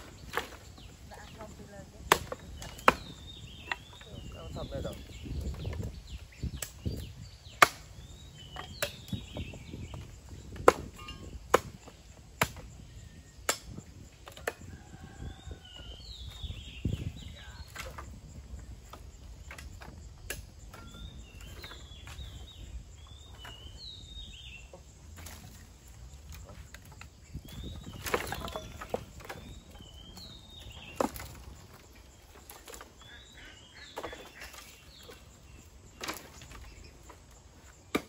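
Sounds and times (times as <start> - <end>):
firewood knocking together: 24.7 - 35.2.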